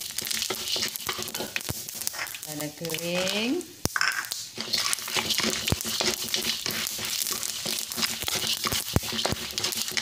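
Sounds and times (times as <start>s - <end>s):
lentils sizzling in oil: 0.0s - 10.0s
wooden spatula scraping pan: 0.1s - 2.4s, 4.6s - 10.0s.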